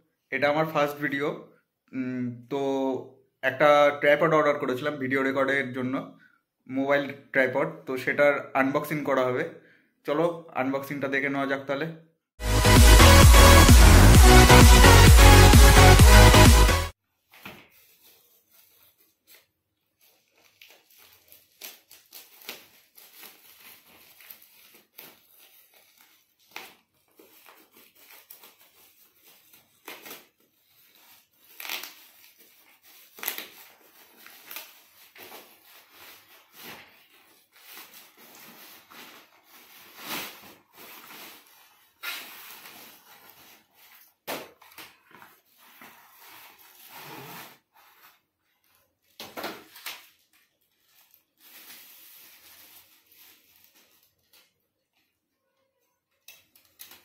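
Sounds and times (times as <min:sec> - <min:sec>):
plastic rustling and tearing: 0:17.2 - 0:55.1, 0:56.1 - 0:57.0
scissors cutting plastic: 0:56.1 - 0:57.0.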